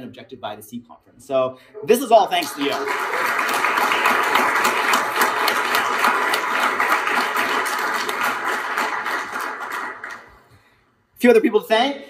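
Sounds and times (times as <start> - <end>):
crowd applauding: 2.3 - 10.5.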